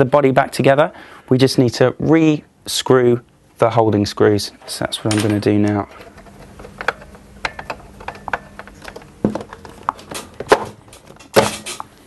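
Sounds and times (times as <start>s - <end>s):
plastic casing knocks: 6.7s - 11.7s.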